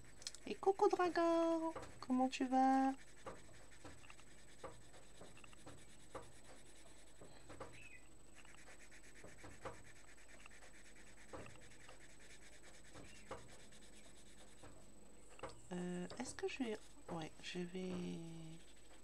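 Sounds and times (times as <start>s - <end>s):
pencil scratching on paper: 0.0s - 15.0s, 15.8s - 19.0s
soft ticks: 0.2s - 0.4s.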